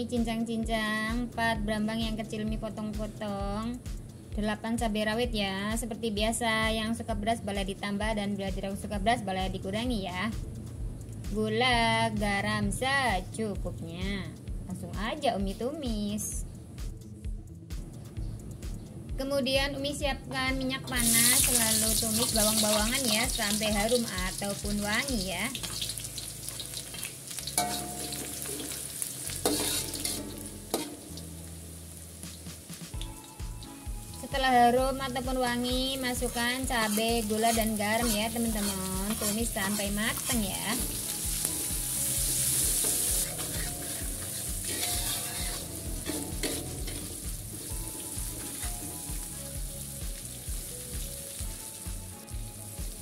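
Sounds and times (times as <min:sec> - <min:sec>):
garlic sizzling in hot oil: 0:20.6 - 0:53.0
metal spatula scraping pan: 0:26.6 - 0:31.1, 0:36.2 - 0:41.5, 0:42.2 - 0:49.2.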